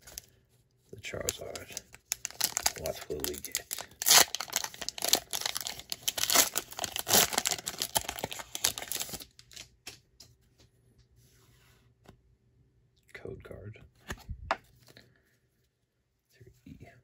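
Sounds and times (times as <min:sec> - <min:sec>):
foil wrapper crinkling: 0:01.0 - 0:09.7.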